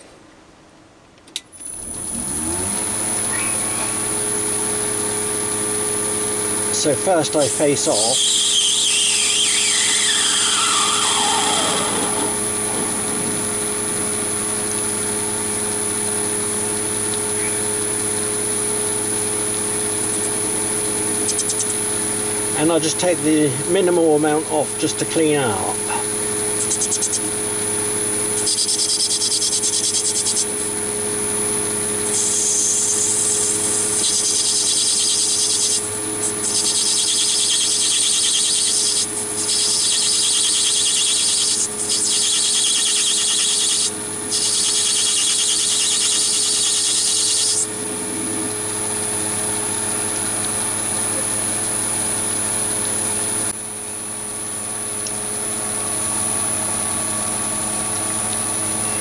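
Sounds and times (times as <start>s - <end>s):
lathe motor hum: 1.6s - 24.2s, 25.5s - 52.7s
cutting tool hissing scrape: 32.1s - 47.8s.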